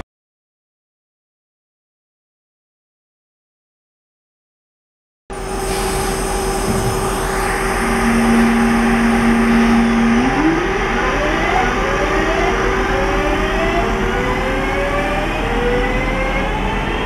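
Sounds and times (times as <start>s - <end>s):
electrical hum: 5.3s - 17.0s
traction motors whining: 5.4s - 17.0s.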